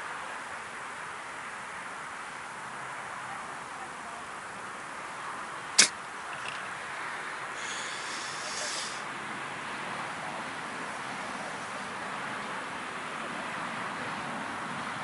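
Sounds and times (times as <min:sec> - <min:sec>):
outdoor background noise: 0:00.0 - 0:15.0
sharp loud crack: 0:05.8 - 0:06.0.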